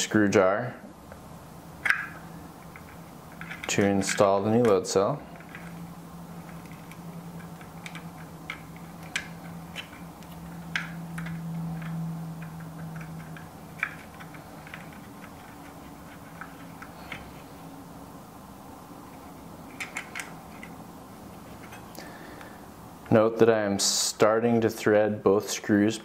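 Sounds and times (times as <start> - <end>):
steady low hum: 0.0 - 26.0
small metal parts clicking: 1.8 - 4.8, 5.4 - 17.4, 19.7 - 20.8.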